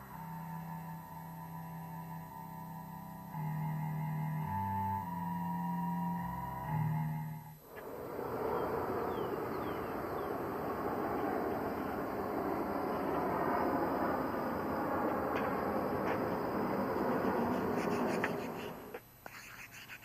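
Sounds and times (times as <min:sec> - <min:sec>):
music: 0:00.0 - 0:07.6
steady outdoor background rush: 0:00.0 - 0:19.2.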